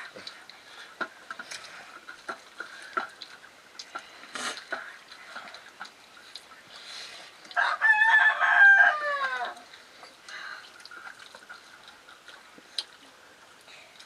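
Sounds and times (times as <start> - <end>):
rooster crowing: 7.6 - 9.6.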